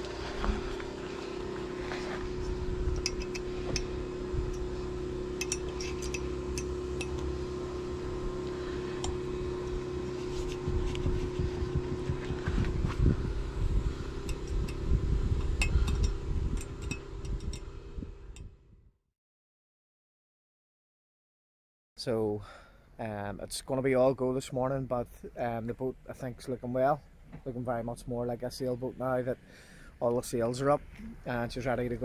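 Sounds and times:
steady mechanical hum: 0.0 - 18.7, 23.3 - 32.0
metallic clicks of handled hardware: 5.4 - 7.2.

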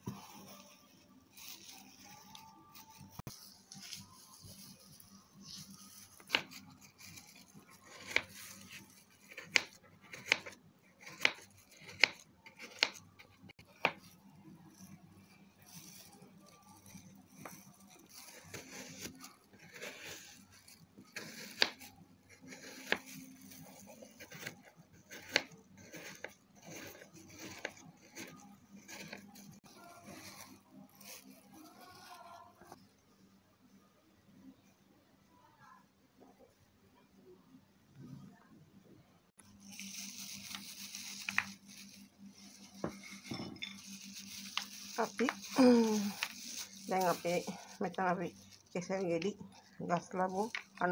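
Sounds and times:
soft rustling and scraping: 0.0 - 9.5, 39.4 - 50.9.

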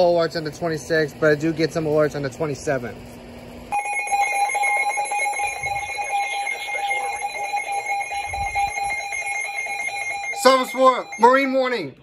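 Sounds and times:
two-tone alarm signal: 3.7 - 12.0.

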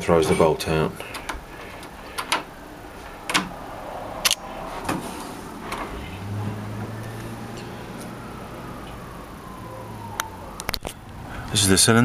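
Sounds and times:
low steady hum: 0.0 - 12.0
door latch clicking: 3.3 - 3.5.

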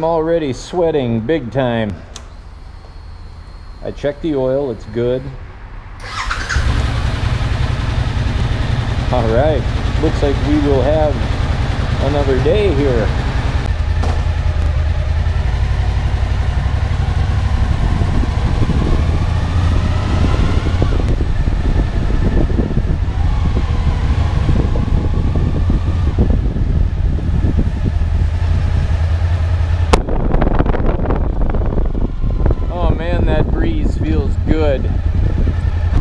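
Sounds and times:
sharp click: 2.1 - 3.0
motorcycle engine idling: 6.0 - 36.0.

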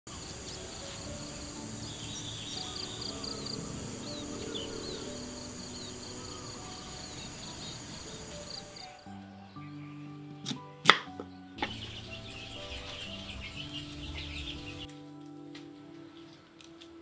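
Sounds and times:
insects droning: 0.1 - 9.2, 11.6 - 14.9
soft background music: 0.1 - 17.0.

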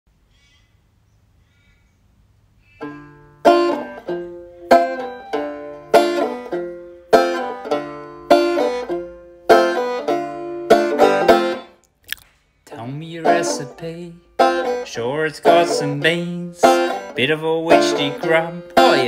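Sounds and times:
banjo strumming chords: 2.8 - 11.8, 12.7 - 19.0.

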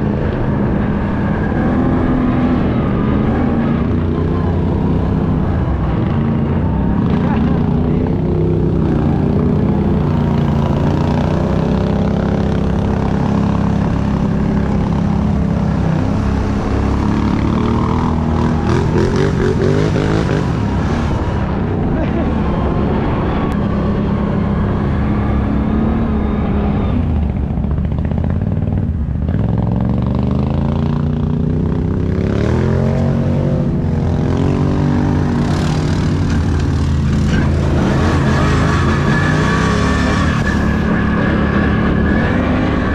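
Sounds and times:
atv engine running: 0.0 - 42.9.

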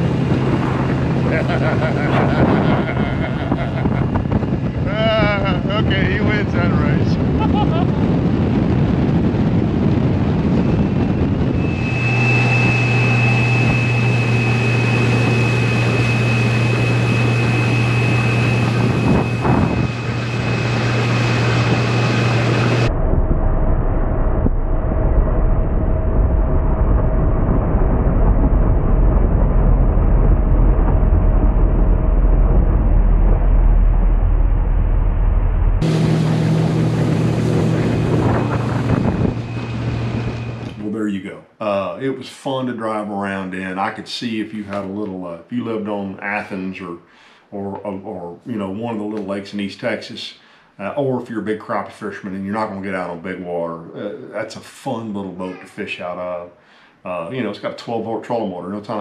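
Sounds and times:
outboard motors whining: 0.0 - 8.1, 10.5 - 22.9, 35.6 - 40.8
water noise: 0.0 - 8.5, 10.1 - 41.0
wind: 0.0 - 42.2.

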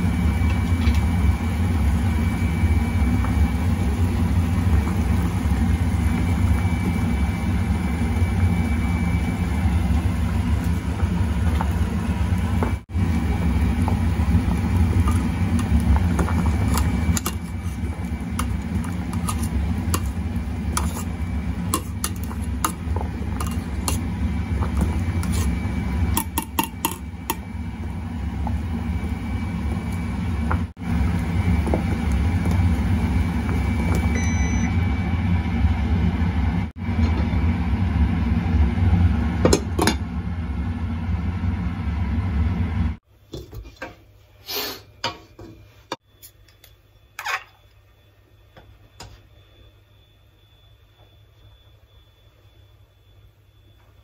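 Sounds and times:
syrup boiling in a pot: 0.0 - 34.2.

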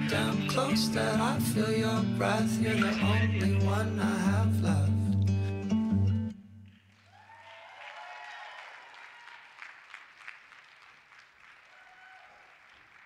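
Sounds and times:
audience applause: 6.6 - 13.0
voices cheering: 7.0 - 9.6, 11.6 - 12.6.

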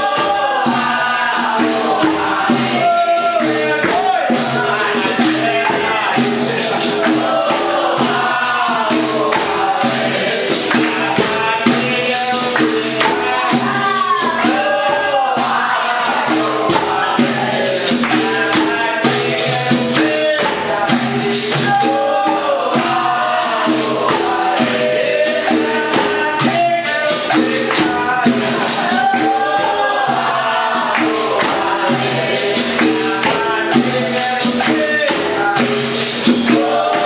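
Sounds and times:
berimbaus and drums playing: 0.0 - 37.0
chorus of voices singing: 0.0 - 37.0.

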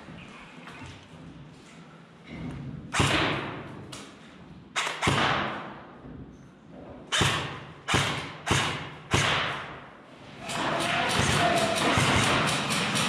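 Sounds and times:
airsoft gun shots echoing: 4.8 - 5.8, 7.1 - 9.8, 10.5 - 13.0.

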